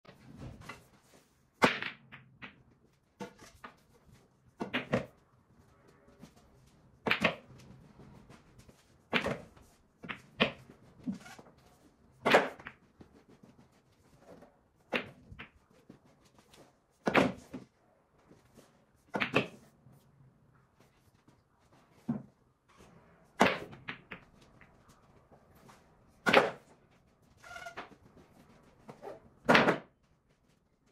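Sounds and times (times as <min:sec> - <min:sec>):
pool balls clacking: 0:01.6 - 0:03.9, 0:07.0 - 0:08.3, 0:09.1 - 0:11.3, 0:19.1 - 0:19.7, 0:21.9 - 0:26.7.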